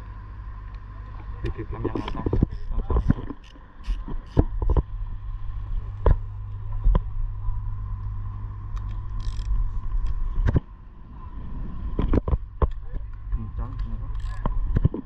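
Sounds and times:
low mechanical drone: 0:00.0 - 0:15.0
ratchet wrench clicks: 0:09.2 - 0:09.5, 0:14.1 - 0:14.4.

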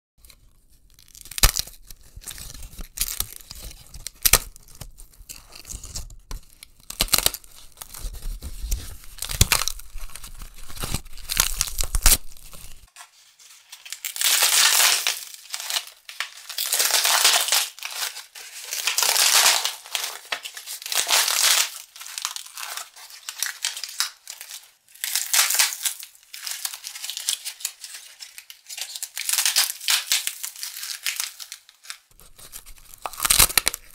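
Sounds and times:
paper and cardboard crushed: 0:01.0 - 0:24.1, 0:32.1 - 0:33.9.

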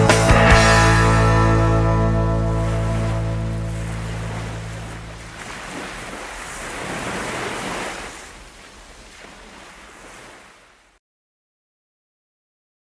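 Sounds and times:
low notes of a song: 0:00.0 - 0:05.0.

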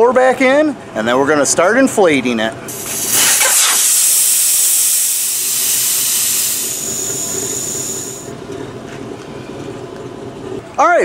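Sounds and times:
air hissing out of tire valve: 0:02.7 - 0:08.3.

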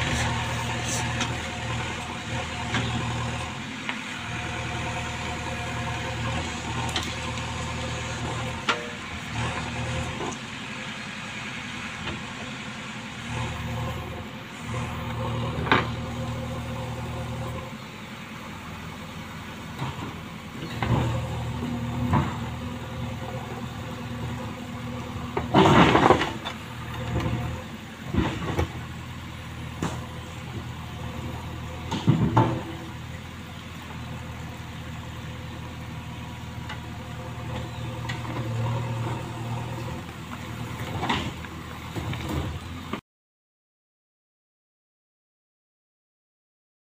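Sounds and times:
diesel engine running: 0:00.0 - 0:43.0
backhoe arm clanks and knocks: 0:19.7 - 0:29.0, 0:29.7 - 0:33.4, 0:36.6 - 0:43.0.

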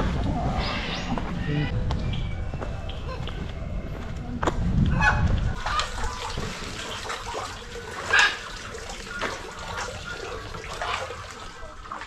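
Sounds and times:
water splashing: 0:05.6 - 0:12.0.

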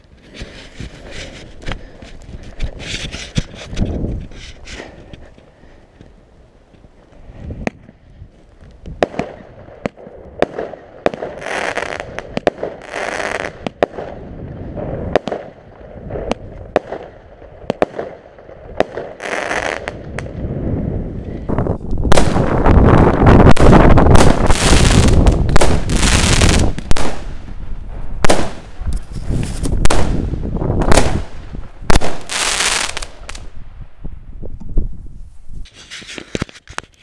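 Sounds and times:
firework pops and cracks: 0:00.0 - 0:05.4, 0:06.0 - 0:14.2, 0:15.1 - 0:20.4, 0:21.8 - 0:27.6, 0:28.2 - 0:33.6
firework shots hissing: 0:23.6 - 0:27.5.

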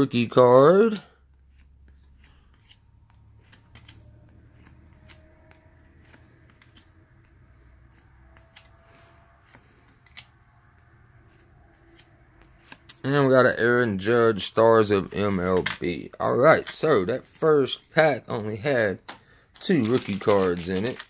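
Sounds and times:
cards flicking and ticking: 0:00.8 - 0:13.0, 0:18.4 - 0:21.0.

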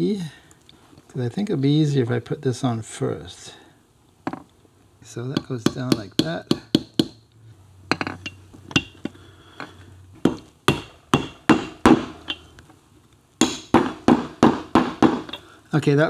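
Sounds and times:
hammer tapping metal: 0:05.4 - 0:07.2, 0:07.9 - 0:09.1, 0:10.2 - 0:12.5, 0:13.4 - 0:15.4.

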